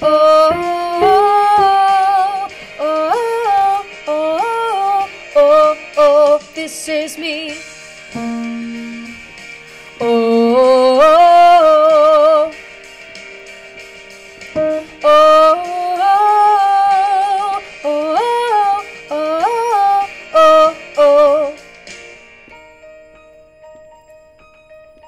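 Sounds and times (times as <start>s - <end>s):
piano accompaniment: 0.0s - 6.5s, 7.2s - 25.0s
woman singing with vibrato: 0.0s - 7.6s, 10.0s - 12.5s, 14.6s - 21.6s.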